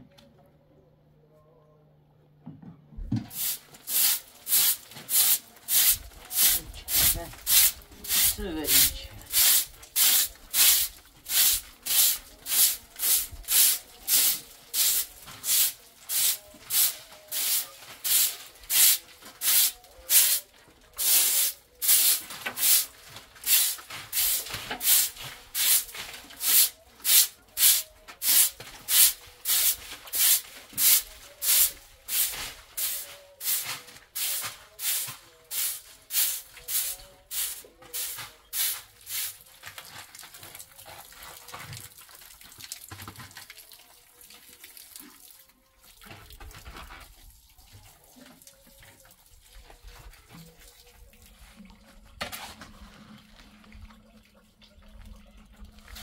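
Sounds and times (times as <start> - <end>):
broom sweeping cement floor: 3.2 - 40.0.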